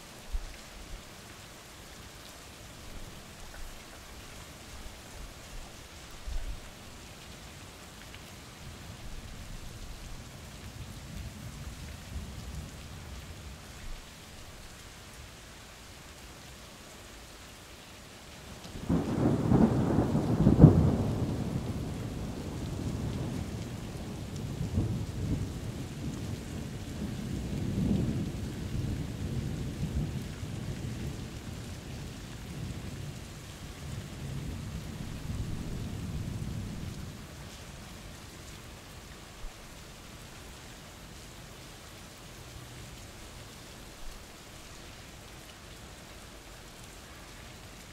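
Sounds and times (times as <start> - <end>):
steady rain: 0.0 - 47.9
thunder rumbling: 18.8 - 26.8.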